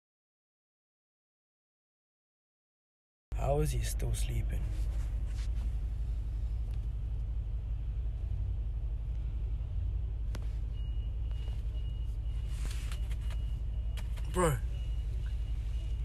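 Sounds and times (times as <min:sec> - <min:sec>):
car engine rumble inside cabin: 0:03.4 - 0:16.0.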